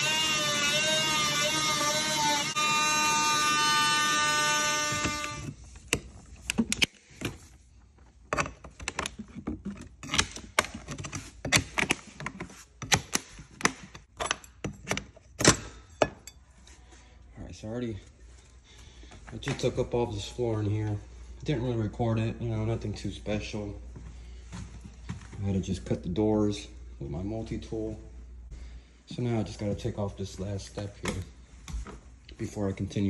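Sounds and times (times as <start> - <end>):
oscillating multi-tool buzzing: 0.0 - 5.5.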